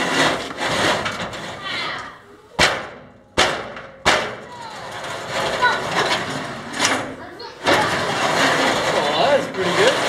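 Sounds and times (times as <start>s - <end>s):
metal parts rattling and scraping: 0.0s - 2.1s, 4.4s - 10.0s.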